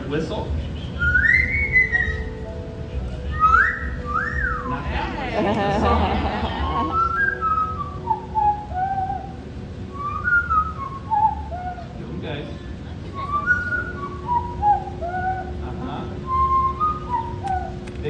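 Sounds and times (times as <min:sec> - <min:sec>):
parrot whistling over loudspeakers: 0:00.8 - 0:02.4, 0:03.3 - 0:04.7, 0:06.9 - 0:12.0, 0:13.2 - 0:15.6, 0:16.2 - 0:17.8.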